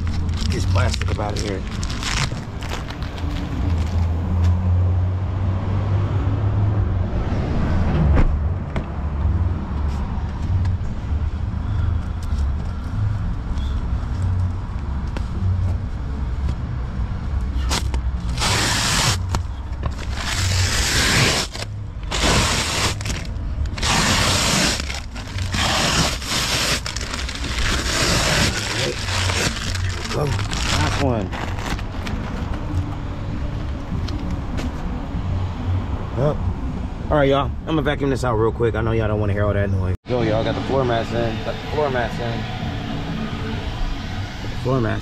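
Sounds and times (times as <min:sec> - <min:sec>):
plastic sheeting crinkling: 0:00.0 - 0:04.0, 0:20.1 - 0:32.0.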